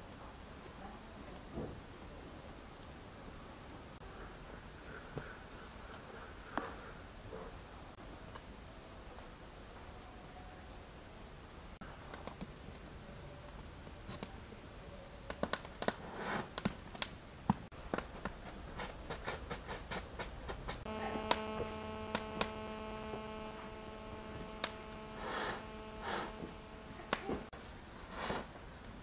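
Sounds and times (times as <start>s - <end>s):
wood fire crackling and popping: 0.0s - 3.8s, 12.0s - 14.5s, 15.3s - 18.4s
steady low hum: 20.3s - 27.5s.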